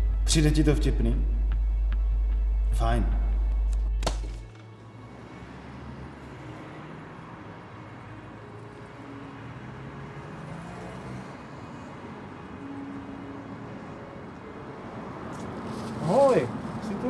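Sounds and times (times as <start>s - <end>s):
road traffic noise: 1.2s - 17.0s
faint engine hum: 4.6s - 17.0s.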